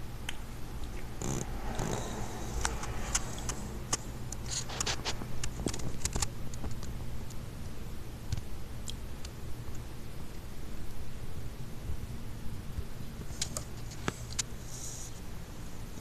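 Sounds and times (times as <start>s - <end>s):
steady low hum: 0.0s - 16.0s
small sharp clicks and ticks: 2.5s - 11.0s.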